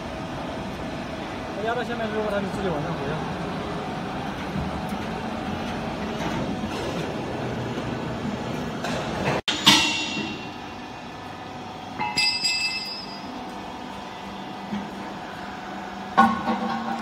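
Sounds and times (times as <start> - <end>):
sharp metal clang: 9.5 - 10.5, 12.0 - 13.3.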